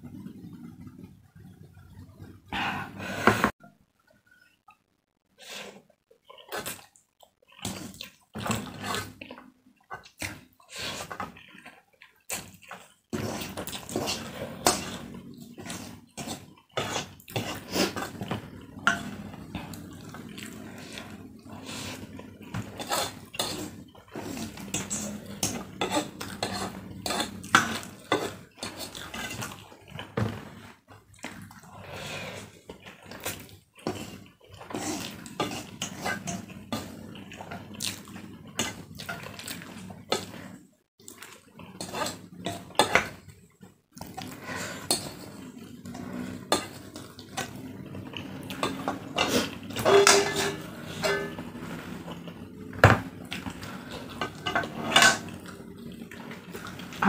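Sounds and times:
slurping and chewing noodles: 0:05.4 - 0:57.0
wooden spatula scraping metal wok: 0:44.3 - 0:52.7.

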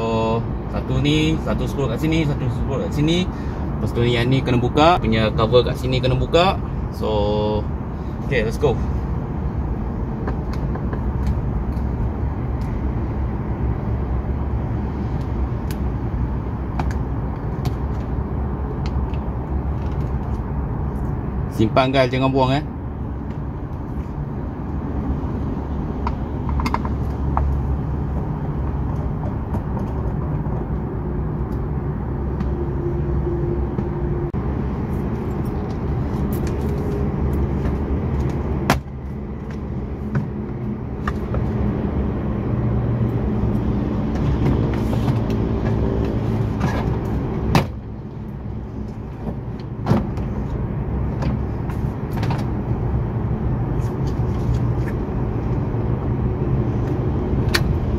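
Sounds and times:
low vehicle rumble: 0:00.0 - 0:57.9.

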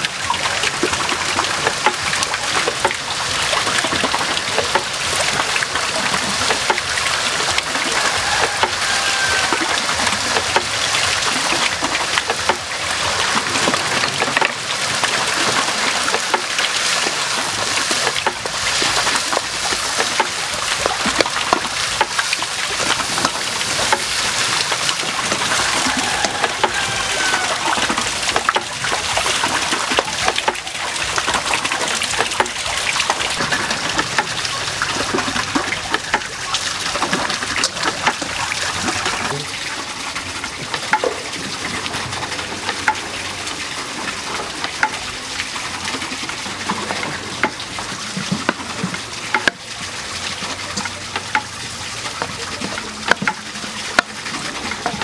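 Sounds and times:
food sizzling in a wok: 0:08.0 - 0:09.6.

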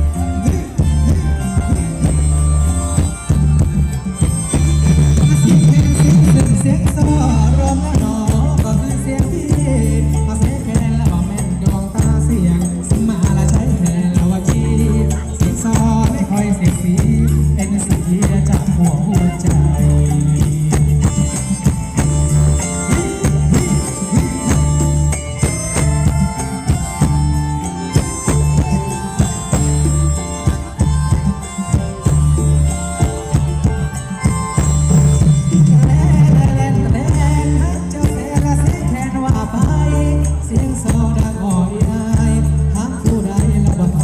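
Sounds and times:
sustained reedy chords: 0:00.0 - 0:09.0
heavy bass beat: 0:00.0 - 0:44.0
live band playing dance music: 0:00.0 - 0:44.0
shaker-like percussion: 0:00.0 - 0:44.0.

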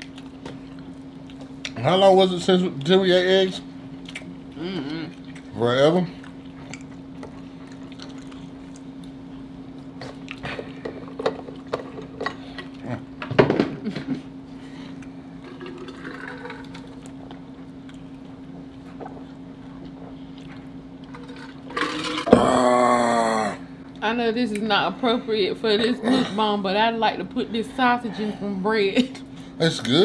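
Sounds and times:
soft chewing: 0:00.0 - 0:01.8, 0:04.0 - 0:11.7, 0:16.9 - 0:21.2
steady low hum: 0:00.0 - 0:30.0
loud voiced sound: 0:22.3 - 0:23.7.

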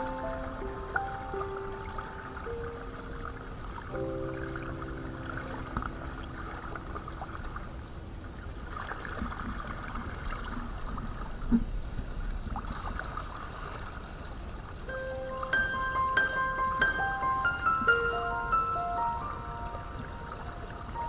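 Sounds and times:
wind rumble on microphone: 0:00.0 - 0:14.9
water splashing against kayak hull: 0:05.4 - 0:14.8.

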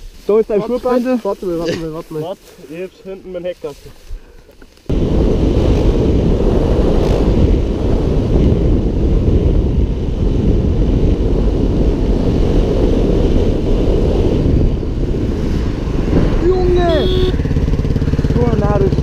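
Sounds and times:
dirt bike engine running: 0:04.9 - 0:19.0
wind noise on microphone: 0:04.9 - 0:19.0.

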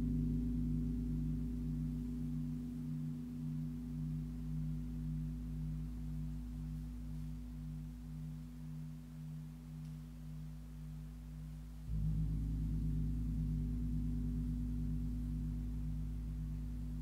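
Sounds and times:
large gong ringing: 0:11.9 - 0:16.4.

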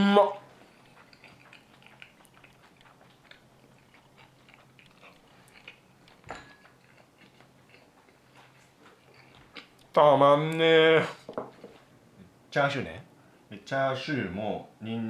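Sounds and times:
person chewing food: 0:00.4 - 0:10.0.

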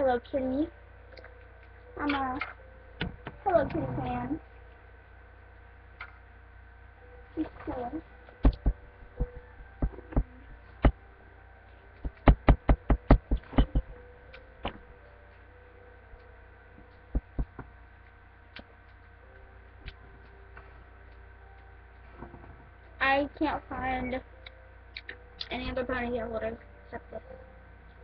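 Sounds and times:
low electrical hum: 0:00.0 - 0:28.0
dull knocks and thumps: 0:08.4 - 0:11.0, 0:12.0 - 0:14.0, 0:17.1 - 0:17.7.

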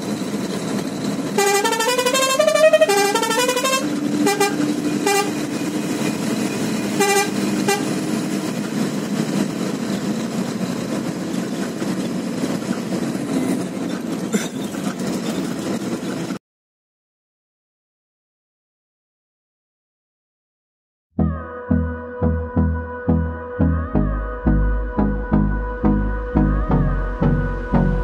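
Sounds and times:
truck engine and road noise: 0:00.0 - 0:16.4, 0:21.2 - 0:28.0
vehicle horn tooting: 0:01.4 - 0:05.6, 0:06.9 - 0:08.0.

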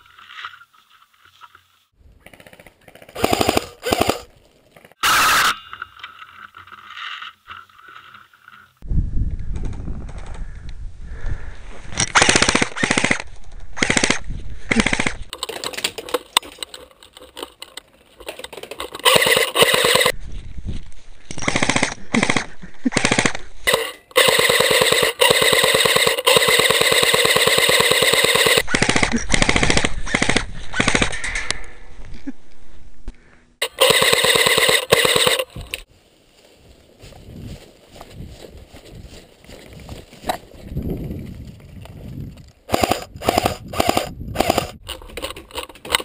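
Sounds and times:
airsoft rifle firing bursts: 0:03.2 - 0:04.3, 0:19.0 - 0:20.1, 0:23.0 - 0:31.0, 0:33.6 - 0:35.5, 0:42.7 - 0:44.8.

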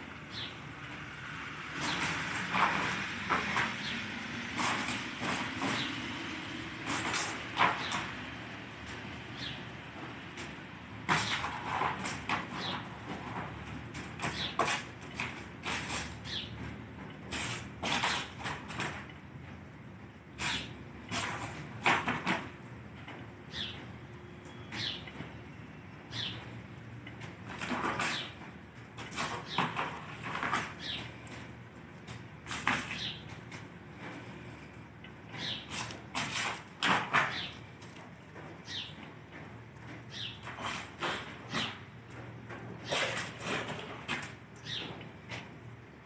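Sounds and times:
street traffic hum: 0:00.0 - 0:46.0
cardboard box scraping on paving: 0:01.7 - 0:06.0, 0:06.8 - 0:08.1, 0:11.1 - 0:16.4, 0:17.3 - 0:19.0, 0:20.4 - 0:22.5, 0:27.5 - 0:28.4, 0:29.0 - 0:31.2, 0:32.4 - 0:33.4, 0:35.4 - 0:37.5, 0:40.4 - 0:41.8, 0:42.8 - 0:44.4.

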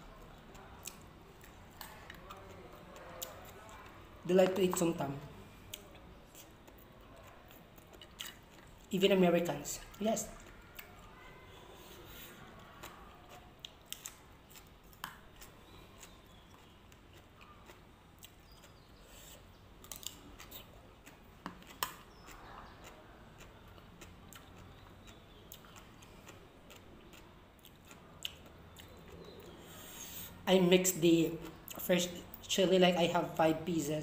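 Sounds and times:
person chewing: 0:00.0 - 0:08.9, 0:09.8 - 0:30.4.

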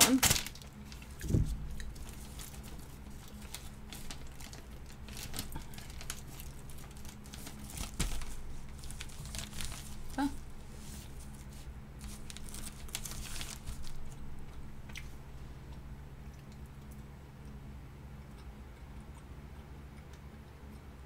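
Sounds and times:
plastic bag crinkling: 0:00.0 - 0:14.2.

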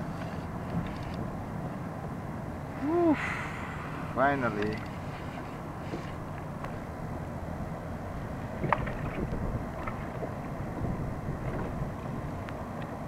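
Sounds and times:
water lapping against kayak hull: 0:04.8 - 0:13.0
wind buffeting microphone: 0:05.6 - 0:13.0.

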